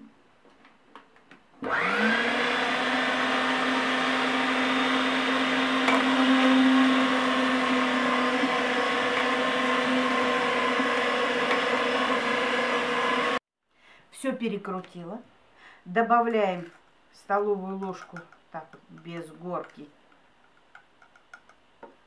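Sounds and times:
electric meat grinder running: 0:01.6 - 0:13.4.

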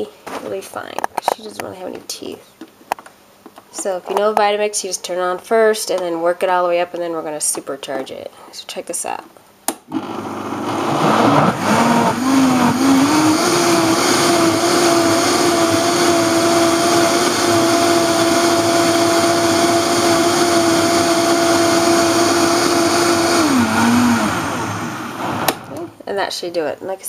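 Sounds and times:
blender motor pureeing: 0:09.9 - 0:25.9.

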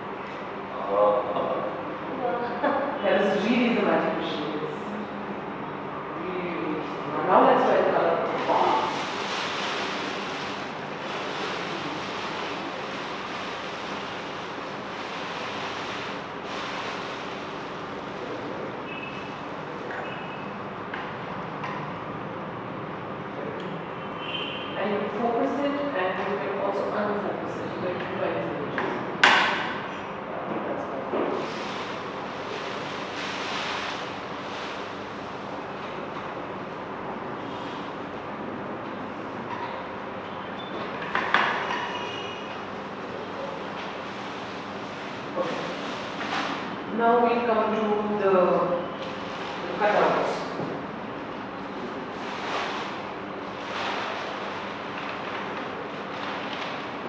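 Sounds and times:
plastic sheet rustling and crinkling: 0:07.5 - 0:18.6, 0:31.4 - 0:35.6, 0:51.7 - 0:57.0.

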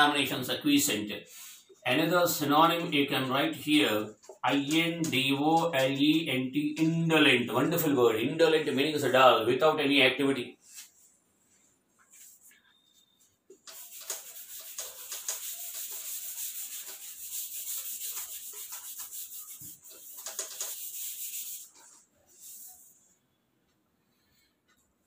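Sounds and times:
eraser scrubbing whiteboard: 0:10.7 - 0:23.2.

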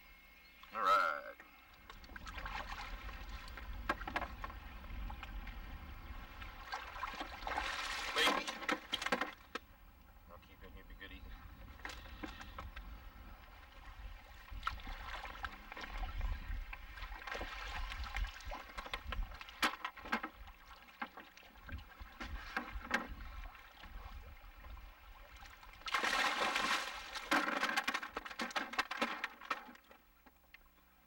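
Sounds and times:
knocks against a canoe: 0:03.6 - 0:05.3, 0:07.0 - 0:09.6, 0:18.7 - 0:23.3, 0:25.9 - 0:30.4
fish splashing in water: 0:25.1 - 0:28.4.

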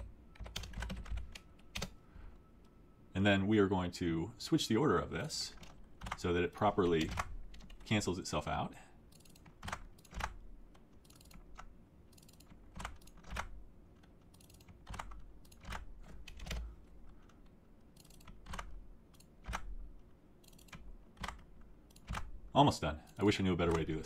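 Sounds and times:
computer keyboard keystrokes: 0:00.0 - 0:02.0, 0:05.6 - 0:07.8, 0:09.1 - 0:22.4.

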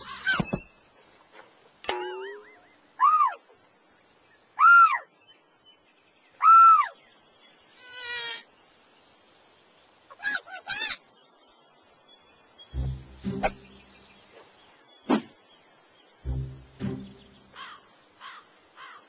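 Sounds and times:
bird-like calls: 0:00.0 - 0:00.8, 0:02.0 - 0:03.6, 0:12.7 - 0:15.5, 0:16.2 - 0:19.0.

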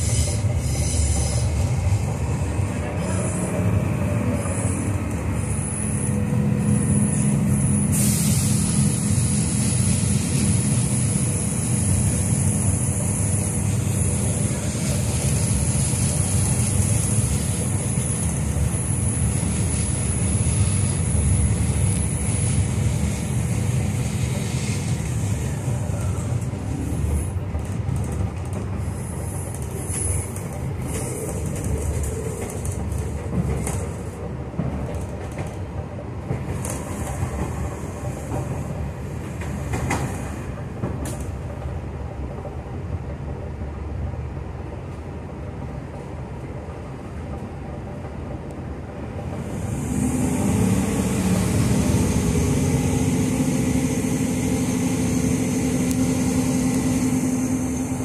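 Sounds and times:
train wheels rumbling on track: 0:00.0 - 0:58.0.

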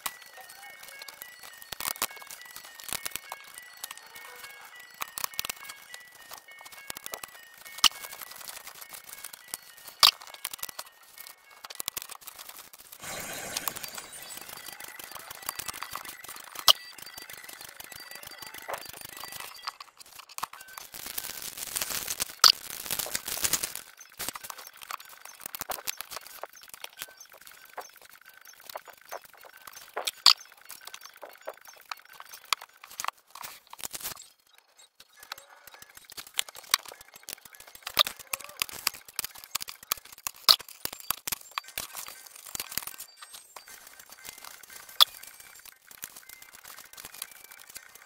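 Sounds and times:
paper rustling: 0:06.2 - 0:30.0, 0:32.8 - 0:34.2.

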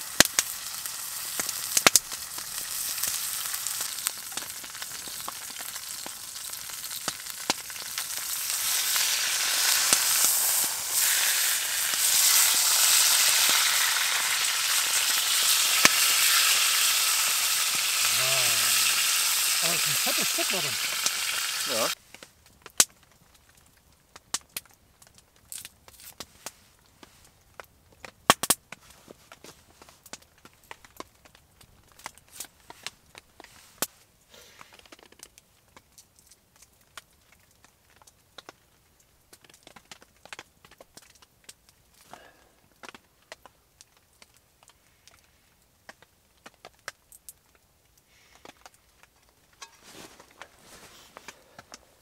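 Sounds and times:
fire hissing: 0:00.0 - 0:22.0
wood fire crackling and popping: 0:00.0 - 0:52.0
sharp pops: 0:08.5 - 0:22.0.

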